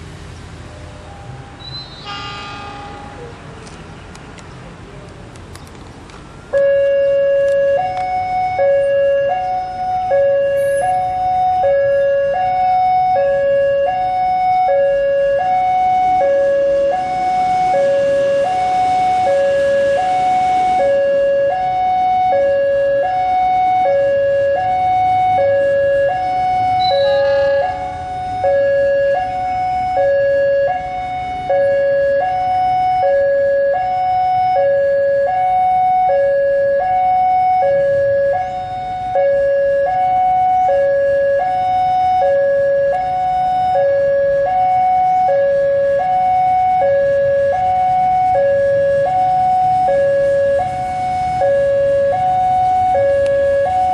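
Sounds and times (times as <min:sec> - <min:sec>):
low train rumble: 0:00.0 - 0:07.6, 0:24.4 - 0:30.0
level-crossing two-tone alarm: 0:01.1 - 0:03.3, 0:06.4 - 0:53.9.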